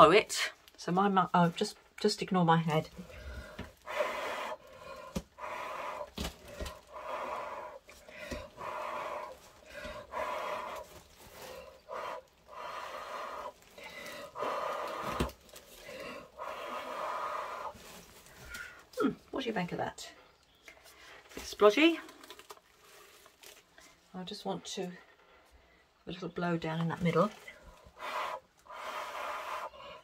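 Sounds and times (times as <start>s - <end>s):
person blowing puffs of breath: 3.0s - 17.8s, 27.9s - 30.0s.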